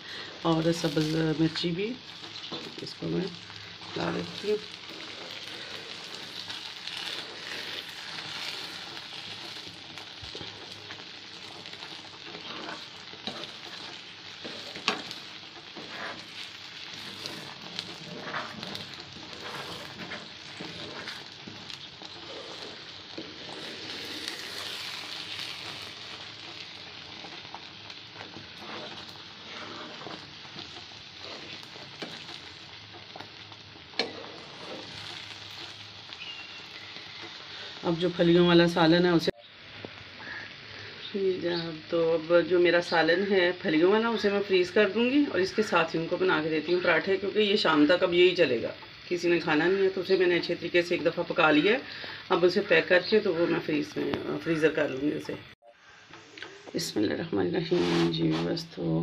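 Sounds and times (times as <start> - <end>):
food sizzling in a pan: 0.0 - 59.0
spatula scraping: 3.6 - 37.5, 57.6 - 58.6.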